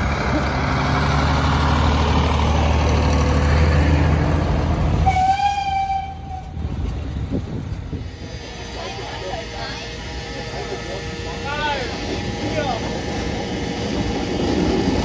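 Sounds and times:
railcar engine drone: 0.0s - 15.0s
train horn: 5.0s - 6.5s, 8.0s - 13.0s.

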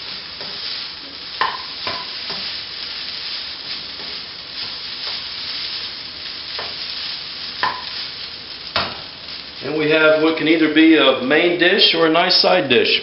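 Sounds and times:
spatula scraping a pan: 0.0s - 8.1s
food sizzling in a pan: 0.0s - 13.0s.

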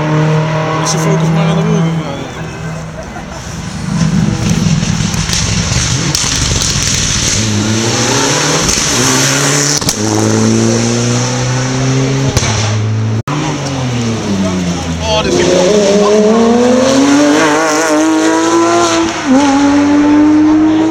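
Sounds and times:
rally car accelerating: 0.0s - 20.9s
exhaust cracks: 3.4s - 10.5s.

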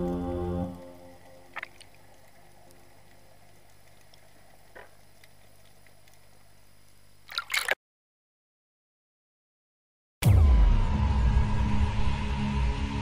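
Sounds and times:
faint underwater hiss: 0.0s - 7.3s.

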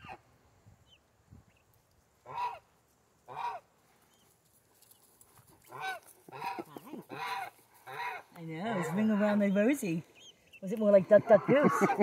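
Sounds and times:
geese honking: 2.2s - 2.6s, 3.3s - 3.6s, 5.6s - 9.8s, 11.0s - 12.0s.

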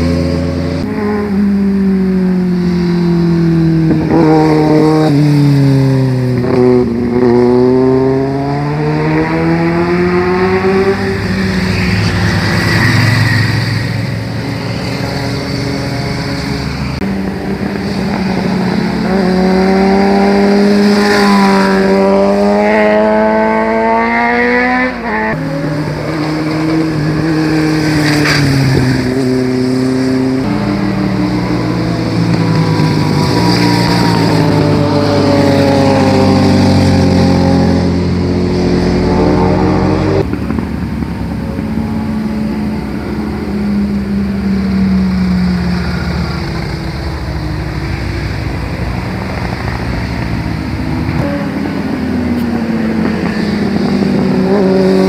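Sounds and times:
motorcycles passing: 0.0s - 55.0s.

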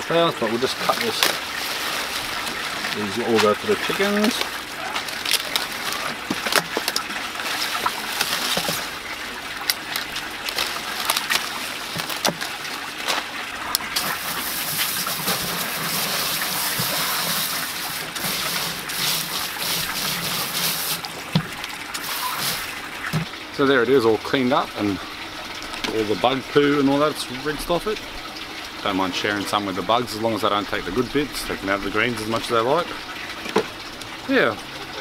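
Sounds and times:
water spraying from hose: 0.0s - 23.4s
leaves snapping and rustling: 0.8s - 23.2s.

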